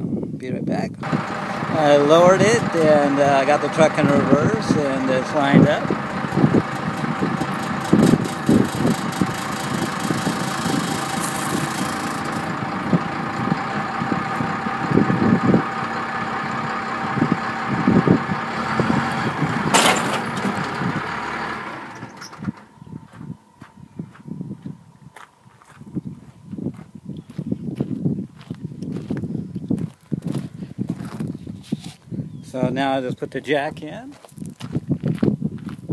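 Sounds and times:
wind buffeting microphone: 0.0 - 35.9
loud burst of noise: 1.0 - 22.5
truck engine running: 1.0 - 25.5.

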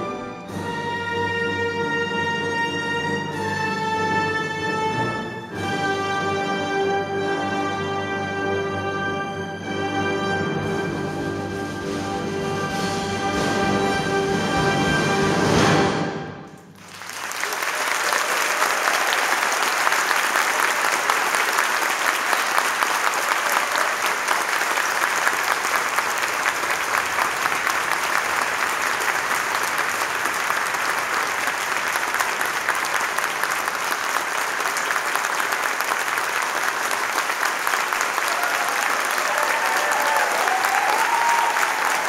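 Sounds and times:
audience applause: 16.7 - 42.0.

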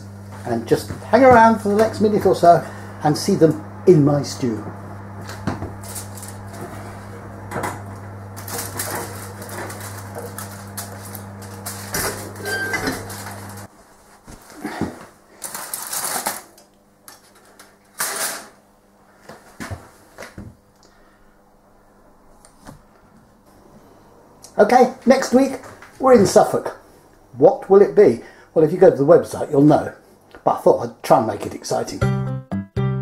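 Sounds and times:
oven low hum: 0.0 - 31.9
aluminium foil crinkling: 5.8 - 6.6, 8.4 - 13.7, 15.3 - 18.4.

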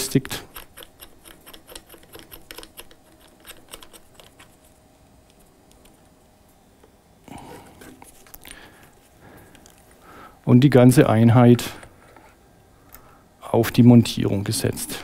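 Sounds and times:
metal ball head clicking and scraping: 0.3 - 5.9.

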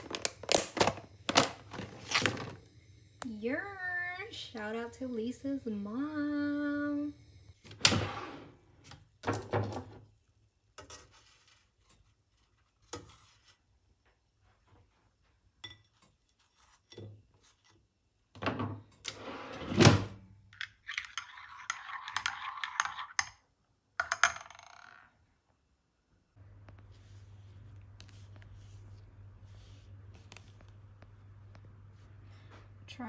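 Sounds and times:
dishes clinking: 15.6 - 16.2.

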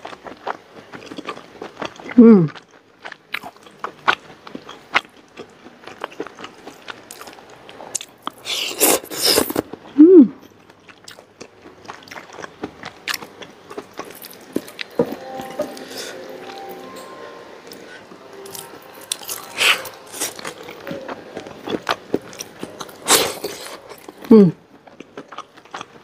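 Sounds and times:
person humming mm: 2.2 - 2.5, 10.0 - 10.4
chewing with wet mouth clicks: 10.7 - 15.0, 18.5 - 26.0.

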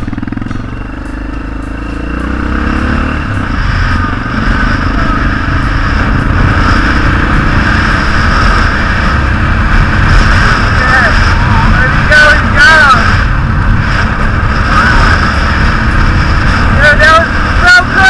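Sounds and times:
motorcycle engine accelerating: 0.0 - 18.0
wind rushing over microphone: 2.0 - 18.0.

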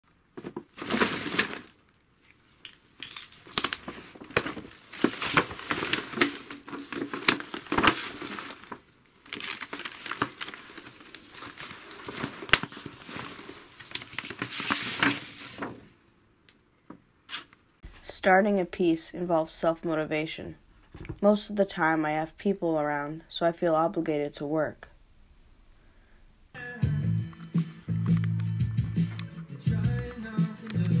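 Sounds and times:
paper rustling and crinkling: 0.4 - 1.8, 3.0 - 15.9.

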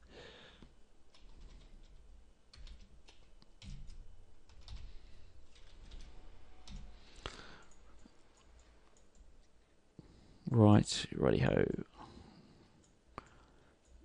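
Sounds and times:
keyboard typing: 1.1 - 9.6.

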